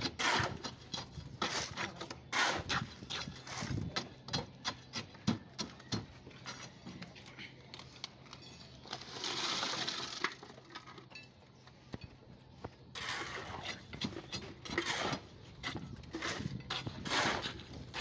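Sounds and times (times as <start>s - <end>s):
rebar rod scraping in concrete: 8.9s - 10.6s, 12.9s - 18.0s.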